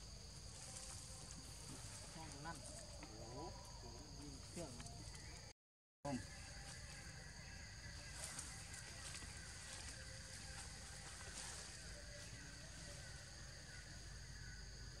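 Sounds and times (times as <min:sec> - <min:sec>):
high thin insect-like tones: 0:00.0 - 0:05.5, 0:06.1 - 0:15.0.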